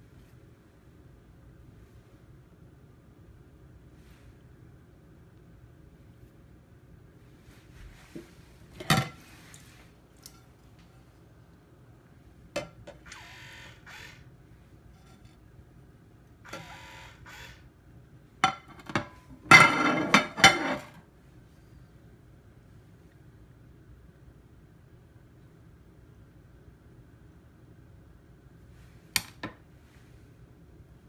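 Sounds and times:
soap dispenser pump motor whirring: 0:12.9 - 0:14.2, 0:16.5 - 0:17.6.

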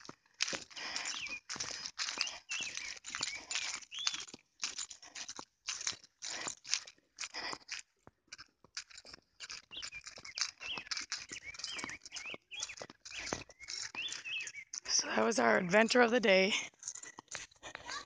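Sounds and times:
footsteps through tall grass: 0:00.0 - 0:07.8, 0:08.4 - 0:14.9
birds chirping: 0:00.7 - 0:04.4, 0:09.4 - 0:18.0.

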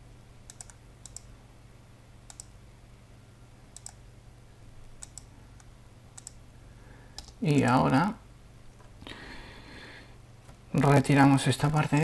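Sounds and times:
faint low hum: 0:00.0 - 0:12.0
computer mouse clicking: 0:00.5 - 0:01.3, 0:02.3 - 0:02.6, 0:03.7 - 0:04.0, 0:04.9 - 0:06.4, 0:07.2 - 0:07.8.

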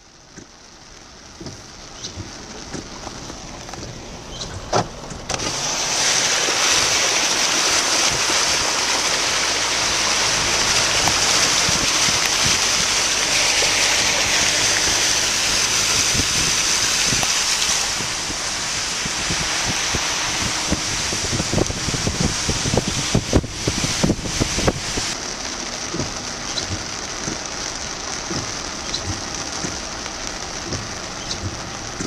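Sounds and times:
heavy rain hissing: 0:00.0 - 0:32.0
raindrops ticking on windshield: 0:00.0 - 0:32.0
wind blowing on microphone: 0:10.3 - 0:25.2.

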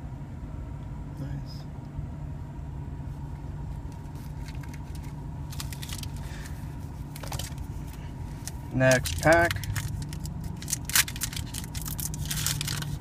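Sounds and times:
low rumble inside a car: 0:00.0 - 0:13.0
foil card pack crinkling: 0:04.2 - 0:13.0.

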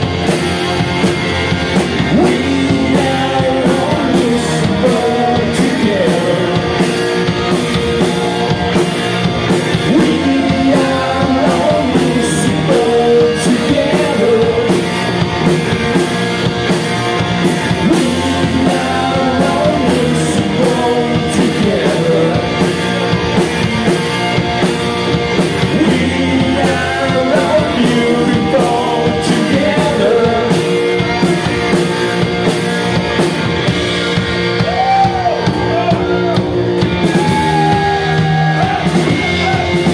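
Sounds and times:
drum kit beat: 0:00.0 - 0:39.9
electric bass: 0:00.0 - 0:39.9
electric guitars: 0:00.0 - 0:39.9
man singing: 0:01.8 - 0:07.2, 0:09.5 - 0:15.3, 0:17.4 - 0:23.2, 0:25.4 - 0:31.7, 0:37.0 - 0:39.9.

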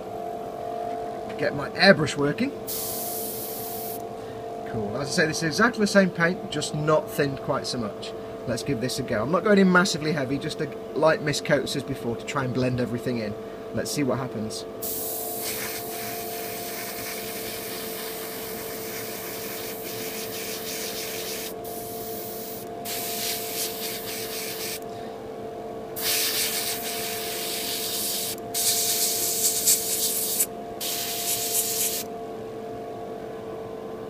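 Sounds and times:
steady hum: 0:00.0 - 0:34.0
airbrush spraying hiss: 0:02.7 - 0:04.0, 0:14.8 - 0:24.8, 0:26.0 - 0:32.1.

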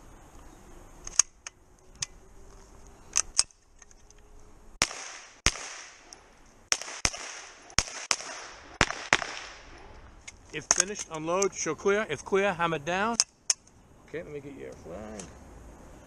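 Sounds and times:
gunshots with echo: 0:06.7 - 0:09.7.

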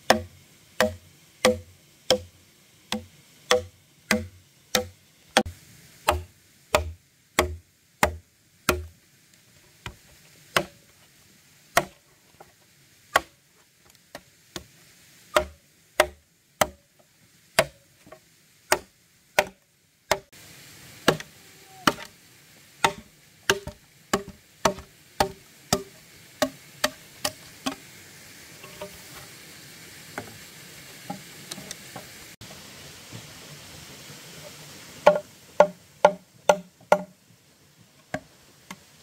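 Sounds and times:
steady hiss: 0:00.0 - 0:39.0
sharp strikes on wood: 0:00.1 - 0:02.3, 0:02.9 - 0:05.5, 0:06.1 - 0:08.9, 0:10.6 - 0:10.8, 0:11.8 - 0:12.0, 0:13.1 - 0:13.4, 0:15.4 - 0:16.8, 0:17.6 - 0:17.8, 0:18.7 - 0:20.3, 0:21.0 - 0:22.1, 0:22.8 - 0:27.8, 0:35.0 - 0:37.1.

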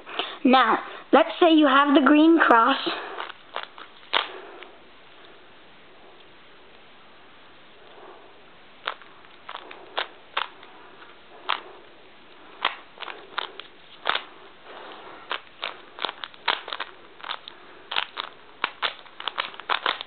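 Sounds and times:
plastic puzzle cube clicking: 0:12.6 - 0:14.3, 0:15.3 - 0:20.0.

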